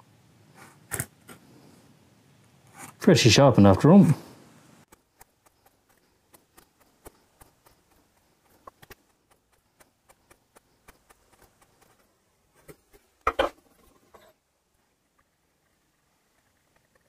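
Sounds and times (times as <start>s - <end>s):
chisel clicking through leather: 4.9s - 12.1s.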